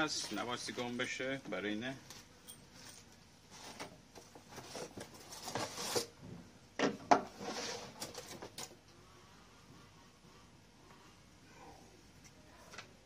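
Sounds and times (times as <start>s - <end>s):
plastic wrapping rustling: 2.1s - 6.2s.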